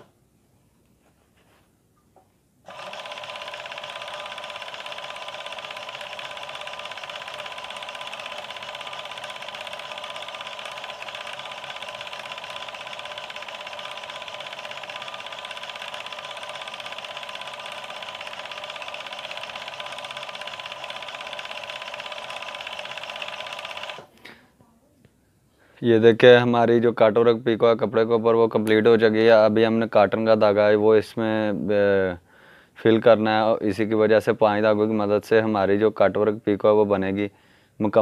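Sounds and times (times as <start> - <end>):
overlock sewing machine running: 2.7 - 24.1.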